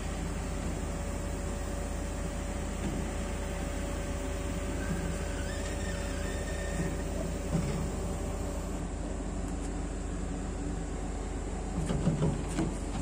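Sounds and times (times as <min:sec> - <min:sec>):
diesel engine humming: 0:00.0 - 0:09.3.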